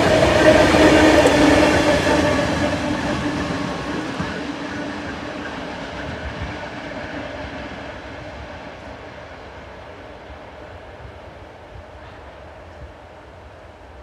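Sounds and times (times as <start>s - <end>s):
diesel locomotive engine: 0.0s - 14.0s.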